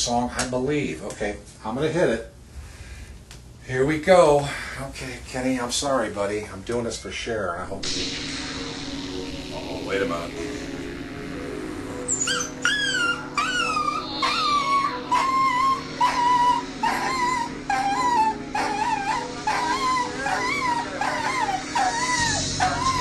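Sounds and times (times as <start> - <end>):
song playing from a record: 7.7 - 23.0
dog crying: 12.1 - 23.0.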